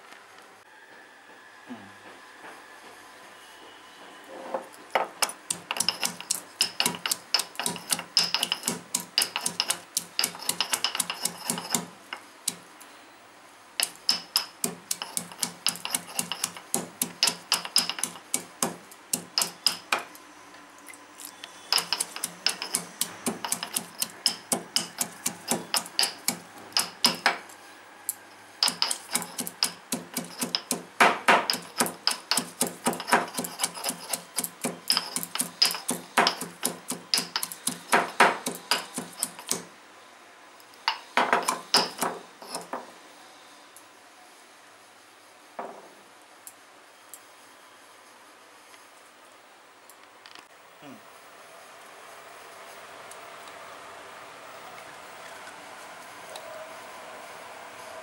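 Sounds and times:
pestle pounding in stone mortar: 5.2s - 12.6s, 13.8s - 20.0s, 21.7s - 27.4s, 28.6s - 39.7s, 41.2s - 42.7s.

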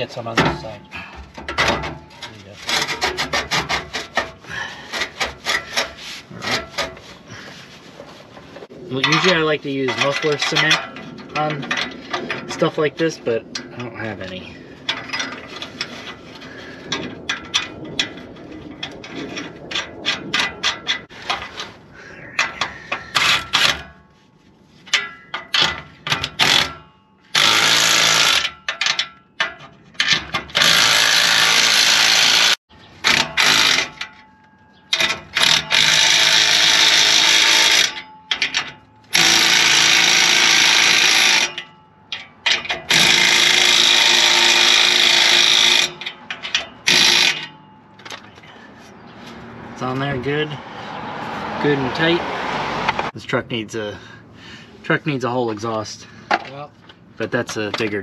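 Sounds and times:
cordless power tool tightening nuts: 26.3s - 26.7s, 27.3s - 29.0s, 30.0s - 34.1s, 34.9s - 41.7s, 42.5s - 47.5s.

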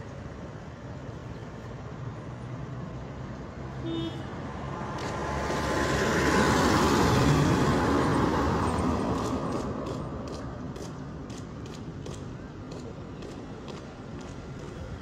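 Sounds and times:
vehicle passing on unpaved road: 4.5s - 15.0s.

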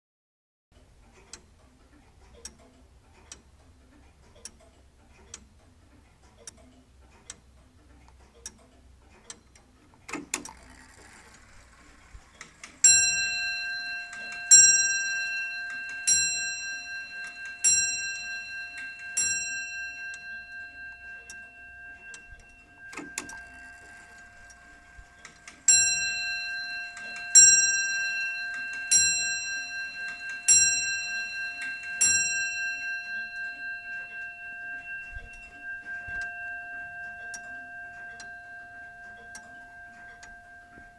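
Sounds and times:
clock ticking: 0.8s - 40.9s
clock bell striking: 12.6s - 40.9s.

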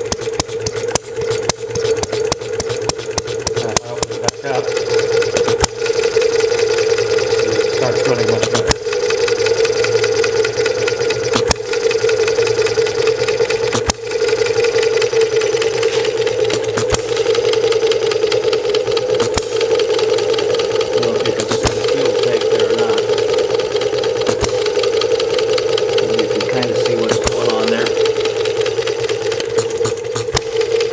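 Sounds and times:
sharp engine click: 0.0s - 4.4s, 8.3s - 8.8s, 19.0s - 19.6s, 21.0s - 22.1s, 24.2s - 25.0s
small engine running: 0.0s - 30.9s.

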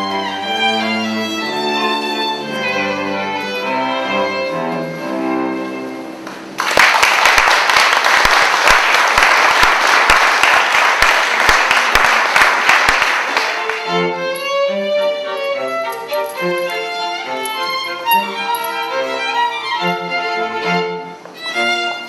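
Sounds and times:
string trio playing dance music: 0.0s - 6.6s, 9.2s - 22.0s
audience applause: 6.3s - 14.0s.

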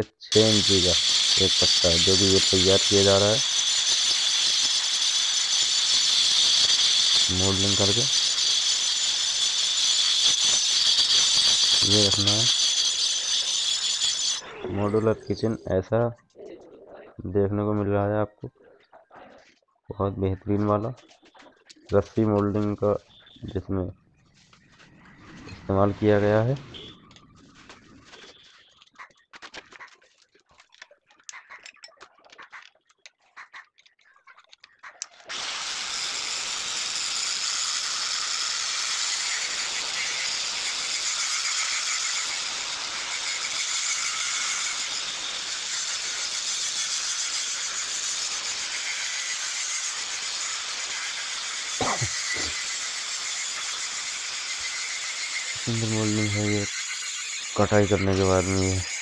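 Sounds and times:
angle grinder grinding stone: 0.3s - 15.6s, 35.0s - 59.0s.

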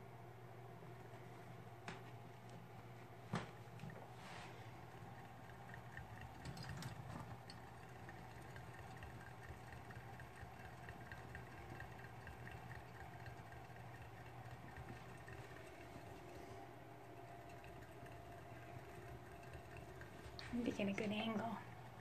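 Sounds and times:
low steady hum: 0.0s - 22.0s
hamster wheel ticking: 4.7s - 22.0s.

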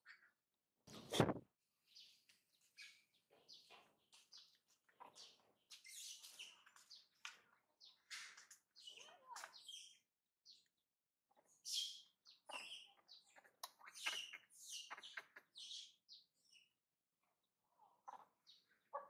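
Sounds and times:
faint bird chirps: 7.8s - 16.8s.

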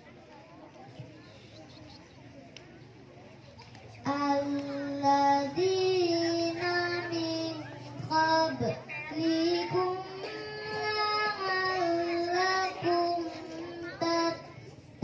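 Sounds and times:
girl reciting melodically: 3.9s - 15.0s.

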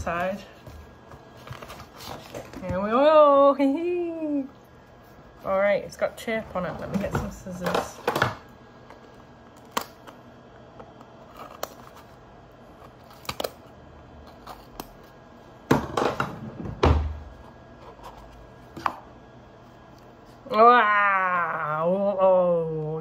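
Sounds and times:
cardboard rustling and scraping: 0.0s - 3.0s.

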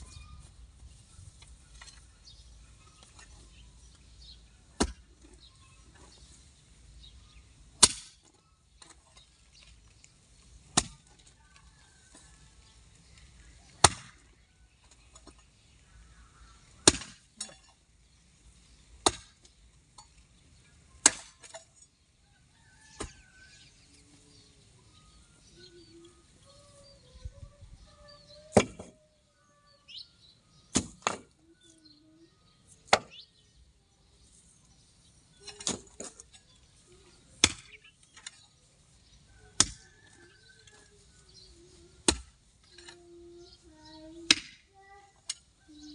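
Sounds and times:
hoe chopping into dry soil: 7.8s - 8.3s, 10.7s - 11.0s, 16.8s - 17.5s, 37.4s - 37.8s, 39.6s - 39.8s.

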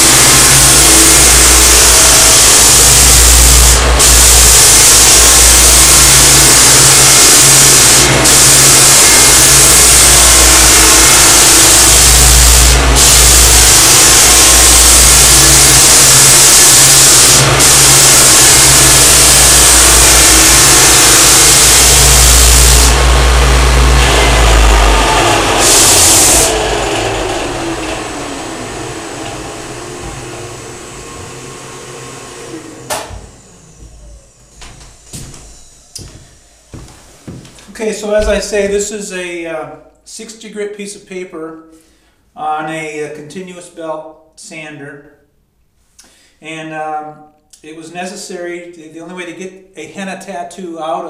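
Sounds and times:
floor sander running: 0.0s - 38.8s
vacuum running: 0.0s - 38.9s.

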